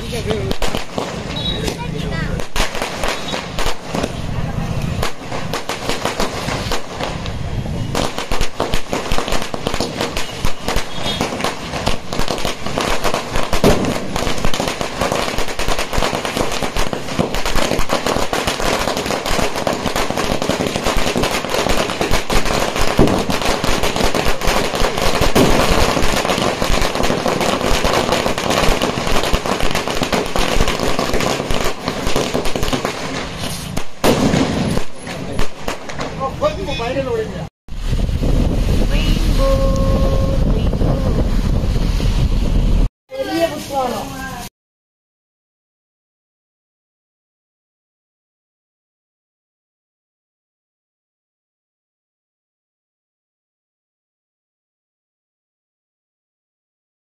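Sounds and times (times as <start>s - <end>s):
firecrackers bursting: 0.0s - 44.5s.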